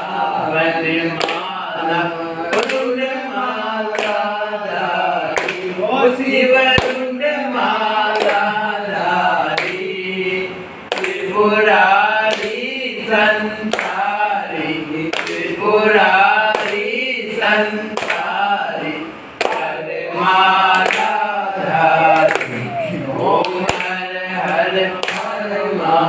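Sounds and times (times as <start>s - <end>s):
voices singing a chant: 0.0s - 26.0s
sharp claps or knocks: 1.2s - 1.5s, 2.5s - 2.9s, 3.9s - 4.3s, 5.3s - 5.7s, 6.7s - 7.1s, 8.1s - 8.5s, 9.5s - 9.9s, 10.9s - 11.2s, 12.2s - 12.7s, 13.7s - 14.0s, 15.1s - 15.5s, 16.4s - 16.9s, 17.9s - 18.3s, 19.4s - 19.7s, 20.7s - 21.1s, 23.4s - 25.4s.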